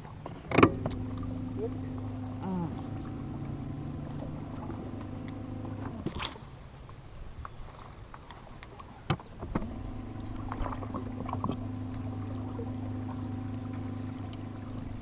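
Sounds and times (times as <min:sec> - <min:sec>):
electric motor humming: 0:00.7 - 0:06.1, 0:09.6 - 0:15.0.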